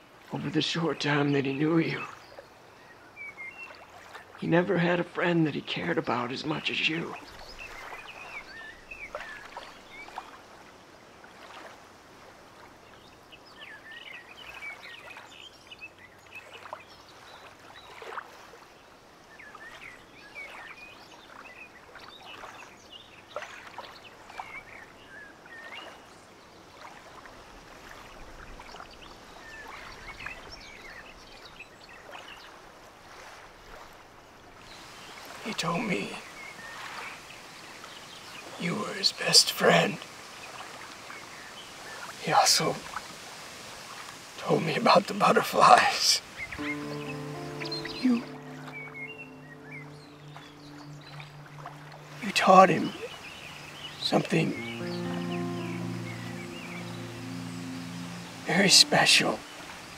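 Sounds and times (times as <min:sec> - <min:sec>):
birds chirping: 0:34.7 - 0:42.9, 0:44.4 - 0:59.9
river rushing over weir: 0:45.5 - 0:59.9.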